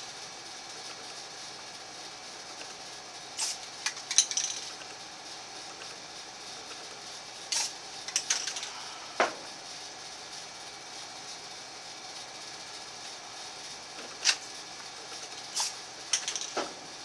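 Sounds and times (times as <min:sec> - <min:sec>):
spray can and stencil clattering: 0:03.4 - 0:04.7, 0:07.5 - 0:08.8, 0:15.2 - 0:16.8.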